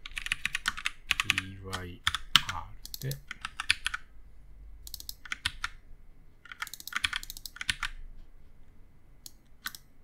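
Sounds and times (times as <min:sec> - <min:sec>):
keyboard typing: 0:00.0 - 0:04.1, 0:04.8 - 0:05.8, 0:06.4 - 0:08.0, 0:09.2 - 0:09.9.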